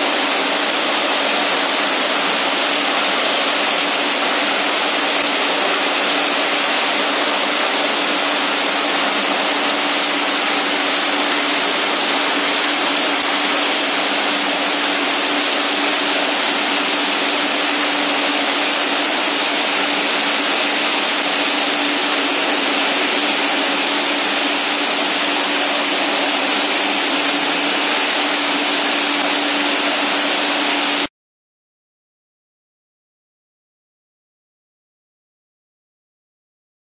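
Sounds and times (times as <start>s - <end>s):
recycling machinery running: 0.0s - 31.1s
steady machine hum: 0.0s - 31.1s.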